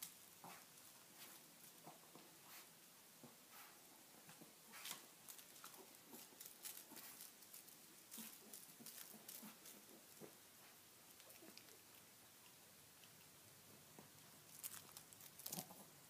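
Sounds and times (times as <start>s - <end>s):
dog paws pattering: 3.5s - 11.8s.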